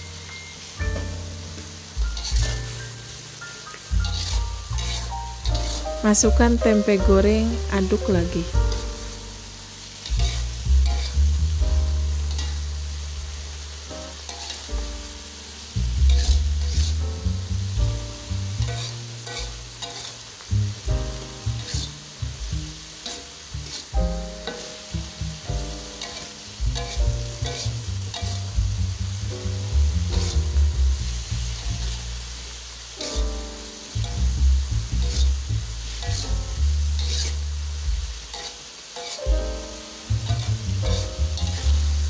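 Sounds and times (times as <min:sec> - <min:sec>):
music with strong bass: 0:00.0 - 0:14.0, 0:14.7 - 0:19.8, 0:20.5 - 0:23.0, 0:23.6 - 0:32.5, 0:33.2 - 0:38.3, 0:39.3 - 0:42.0
vegetables sizzling in a wok: 0:00.0 - 0:42.0
spatula scraping a wok: 0:00.5 - 0:06.6, 0:08.6 - 0:33.2, 0:33.8 - 0:42.0
spatula clicking on pan: 0:38.3 - 0:39.2.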